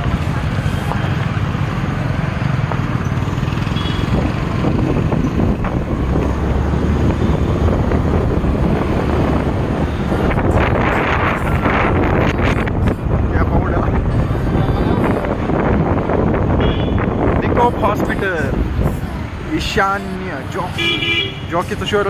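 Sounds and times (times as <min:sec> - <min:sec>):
engine and road rumble: 0:00.0 - 0:22.0
wind buffeting microphone: 0:04.0 - 0:19.4.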